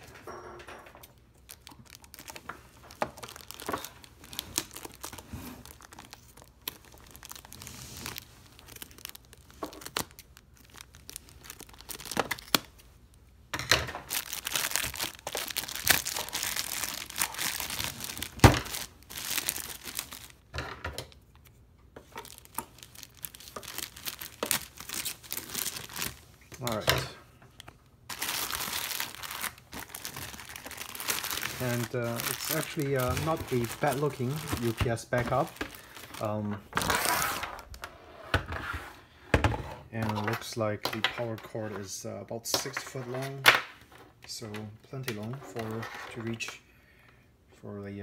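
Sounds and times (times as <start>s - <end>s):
plastic packaging crinkling and tearing: 1.3s - 13.2s, 13.9s - 20.5s, 21.1s - 37.8s.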